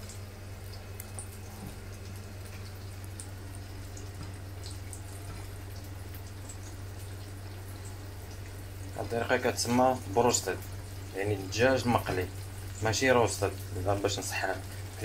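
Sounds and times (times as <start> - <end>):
chicken deep-frying in oil: 0.0 - 15.0.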